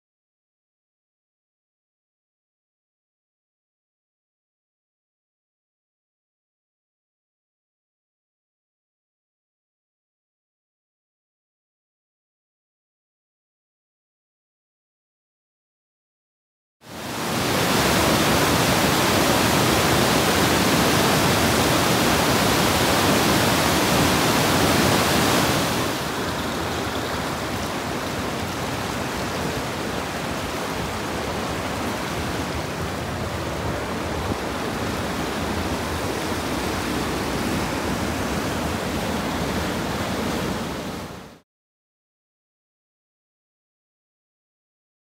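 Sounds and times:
creek rushing over boulders: 16.9s - 41.4s.

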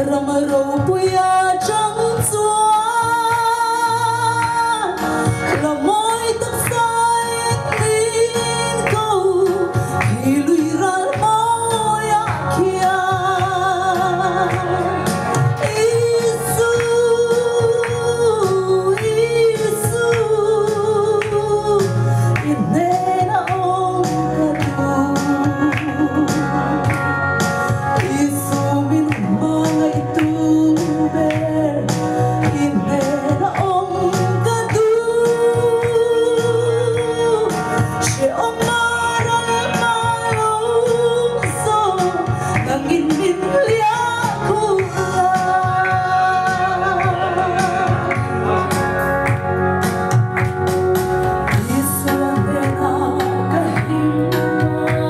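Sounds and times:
woman singing gospel song: 0.0s - 48.6s, 51.5s - 55.0s
live instrumental accompaniment: 0.0s - 55.0s.

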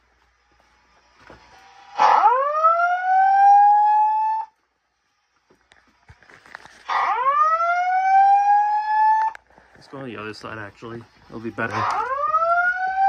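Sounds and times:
rising whoop alarm tone: 1.7s - 4.5s, 7.0s - 9.4s, 11.8s - 13.0s.

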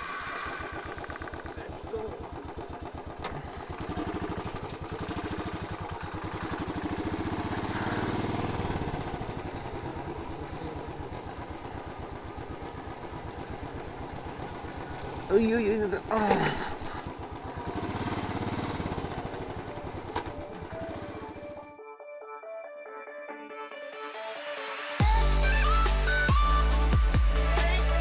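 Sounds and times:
motorcycle engine riding off: 0.0s - 21.7s.

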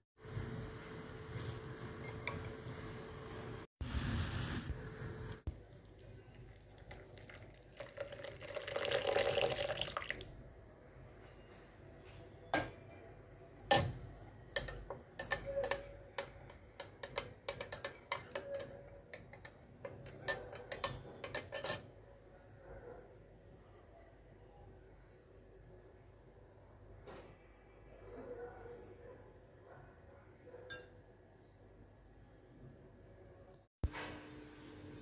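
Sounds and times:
milk pouring into a glass mug: 5.5s - 10.4s
metal spoon clinking against glass: 14.6s - 21.9s, 30.7s - 31.0s.

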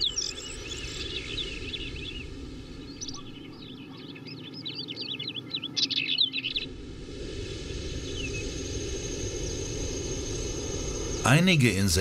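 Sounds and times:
small birds chirping: 0.0s - 6.7s
low outdoor background: 0.0s - 12.0s.

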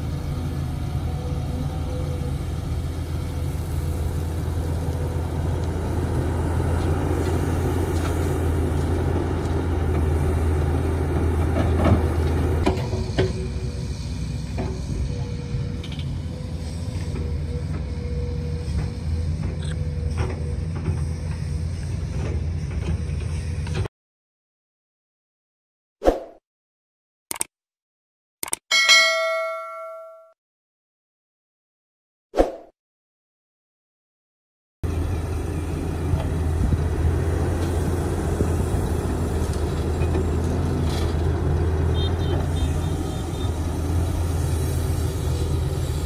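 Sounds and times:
excavator diesel engine: 0.0s - 23.9s, 34.8s - 46.0s.

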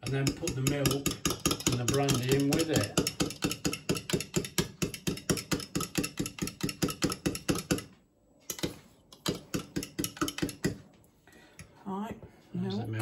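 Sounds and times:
fork tapping against jug: 0.0s - 7.9s, 8.5s - 10.8s.

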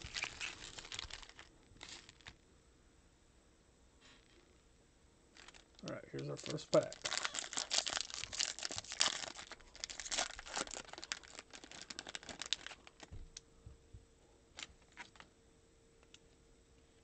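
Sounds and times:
foil wrapper crinkling and tearing: 0.0s - 2.4s, 5.4s - 13.2s, 14.5s - 15.3s.

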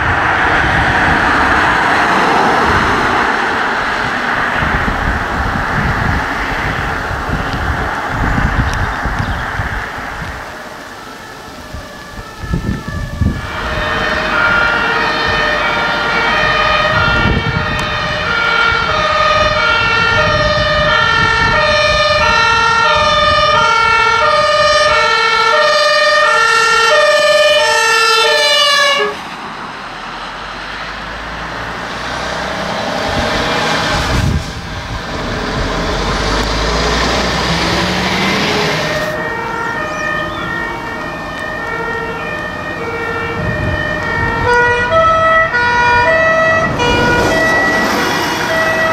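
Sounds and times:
road noise: 0.0s - 48.9s
two-tone emergency siren: 0.0s - 48.9s
engine revving: 29.9s - 40.9s, 41.5s - 48.9s.

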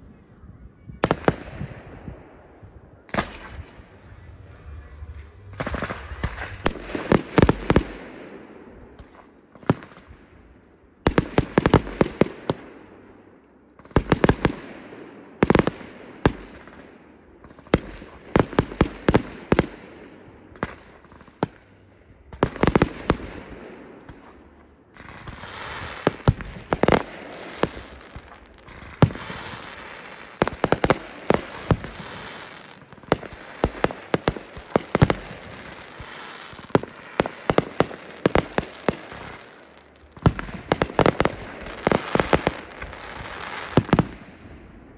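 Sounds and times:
firework crackling hiss: 25.0s - 44.1s
firework shells bursting: 25.0s - 44.2s.

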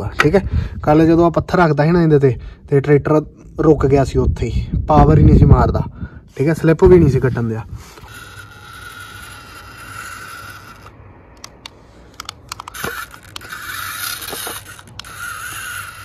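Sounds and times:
electric motor and gearbox whining: 6.8s - 16.0s
sharp clicks: 10.8s - 15.7s.

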